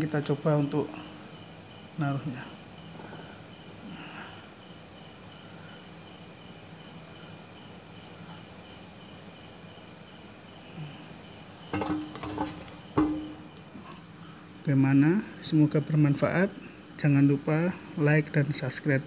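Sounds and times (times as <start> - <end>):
knocks on wooden tabletop: 11.7 - 13.6.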